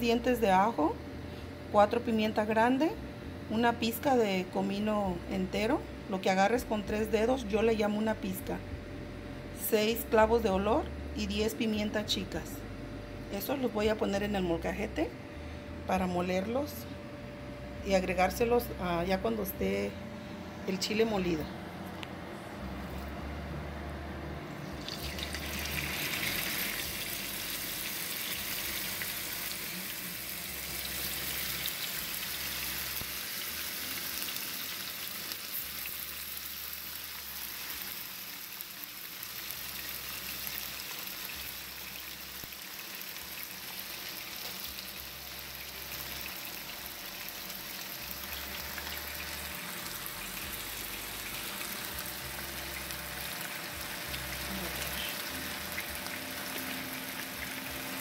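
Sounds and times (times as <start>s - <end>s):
beef sizzling in hot oil: 24.8s - 58.0s.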